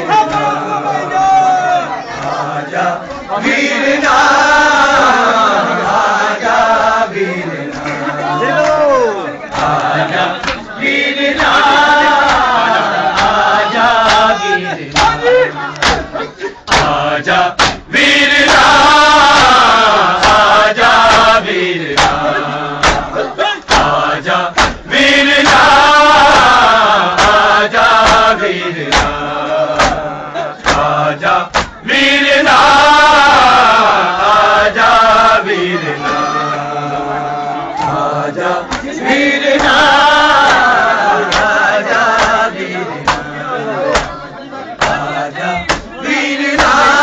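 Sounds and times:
crowd of men chanting: 0:00.0 - 0:47.0
sharp slaps: 0:09.5 - 0:10.7, 0:11.4 - 0:15.2, 0:15.8 - 0:21.4, 0:22.0 - 0:31.8, 0:38.6 - 0:39.0, 0:39.6 - 0:43.3, 0:43.9 - 0:44.2, 0:44.8 - 0:46.0, 0:46.6 - 0:46.9.

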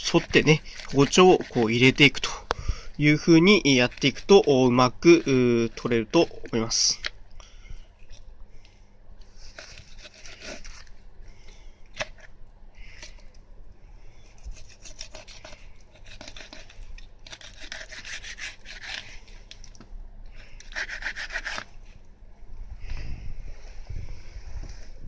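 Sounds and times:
knife rasping along fish bones: 0:00.0 - 0:02.4, 0:03.3 - 0:06.5, 0:09.5 - 0:10.9, 0:14.3 - 0:19.4, 0:20.3 - 0:21.7.

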